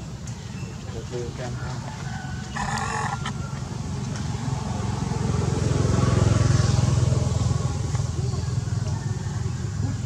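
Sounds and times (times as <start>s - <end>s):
vehicle engine passing by: 2.5s - 10.0s.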